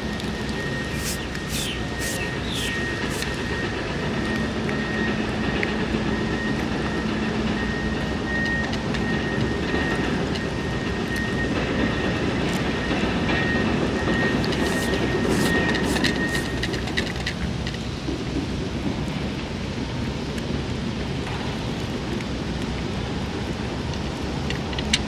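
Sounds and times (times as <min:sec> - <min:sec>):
air and light drizzle: 0:00.0 - 0:04.4, 0:14.2 - 0:25.0
cat chewing wet food: 0:00.0 - 0:05.4, 0:14.0 - 0:16.9
sharp wet clicks: 0:00.1 - 0:03.6.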